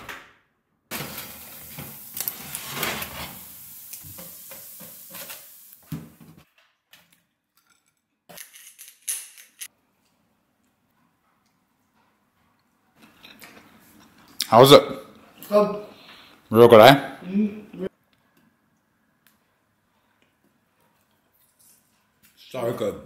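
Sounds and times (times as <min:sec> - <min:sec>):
metal tray clattering and scraping: 0:00.9 - 0:03.5.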